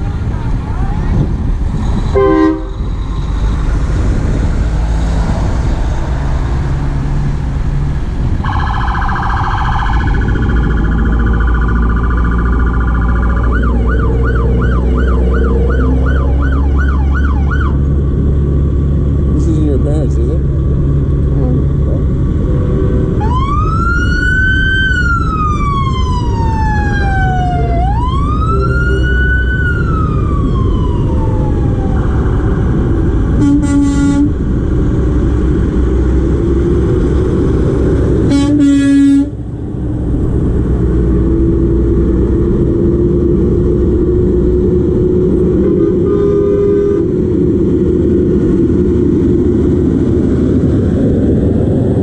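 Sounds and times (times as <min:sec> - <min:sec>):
diesel truck engines rumbling: 0:00.0 - 0:52.0
air horn blasts: 0:02.1 - 0:02.8, 0:33.4 - 0:34.4, 0:38.3 - 0:39.4, 0:45.6 - 0:47.1
siren wailing: 0:02.1 - 0:03.6, 0:08.4 - 0:17.8, 0:23.2 - 0:34.1.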